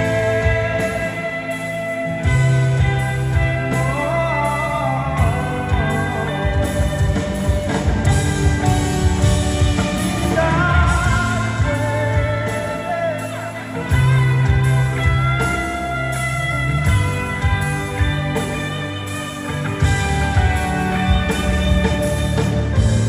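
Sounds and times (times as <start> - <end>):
drums: 0.0 - 23.0
electric guitars: 0.0 - 23.0
keyboard: 0.0 - 23.0
person singing: 0.0 - 23.0.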